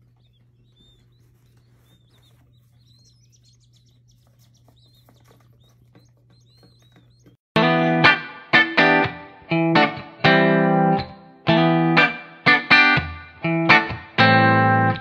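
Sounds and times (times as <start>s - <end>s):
baby chicks peeping: 0.0s - 7.4s.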